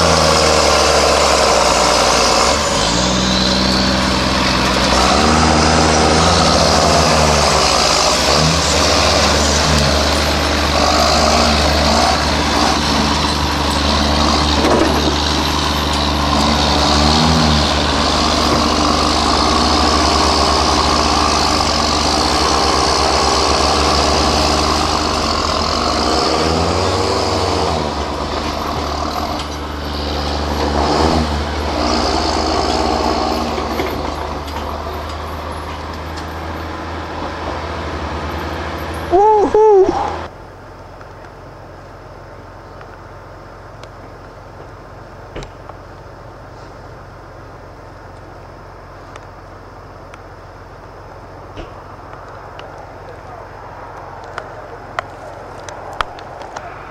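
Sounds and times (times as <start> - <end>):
tractor diesel engines under load: 0.0 - 56.9.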